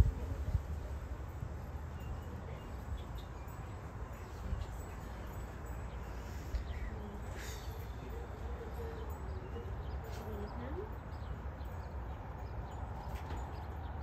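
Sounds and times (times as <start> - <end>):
wind rumble on microphone: 0.0 - 5.9.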